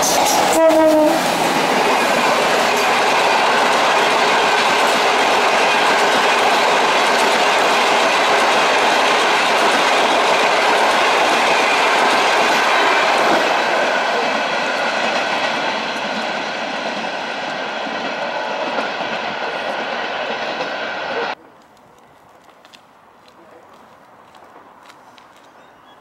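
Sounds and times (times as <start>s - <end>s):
train wheels rushing on rails: 0.0s - 21.4s.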